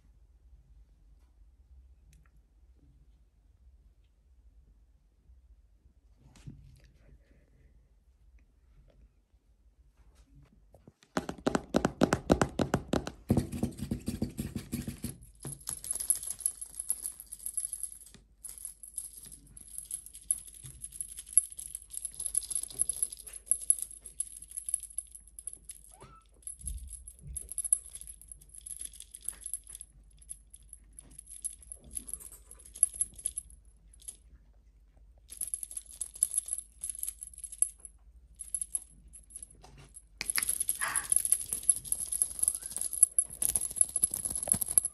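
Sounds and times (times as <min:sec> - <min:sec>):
toy rattling and jingling: 0:14.9 - 0:34.3, 0:35.2 - 0:44.9
thin high ringing: 0:40.2 - 0:44.9.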